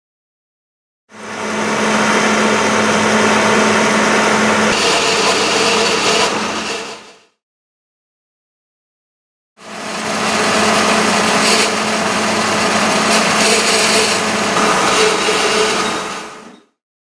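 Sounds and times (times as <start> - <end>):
milling machine drilling metal: 1.2 - 7.2, 9.6 - 16.6.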